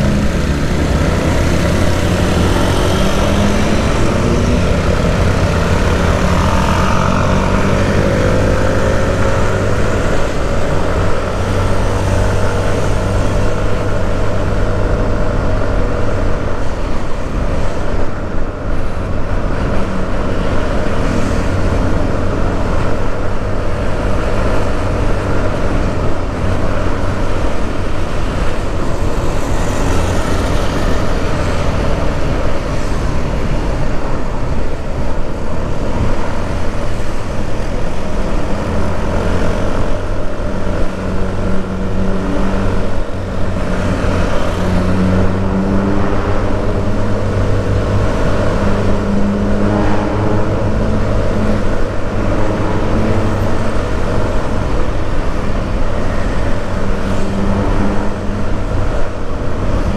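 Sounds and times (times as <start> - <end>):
road noise: 0.0 - 59.9
vehicle engine running: 0.0 - 59.9.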